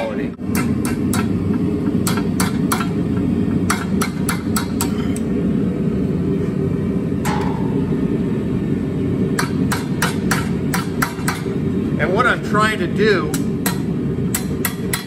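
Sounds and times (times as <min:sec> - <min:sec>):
hammer tapping hot steel on anvil: 0:00.4 - 0:05.0, 0:07.2 - 0:07.9, 0:09.3 - 0:11.6, 0:13.2 - 0:15.0.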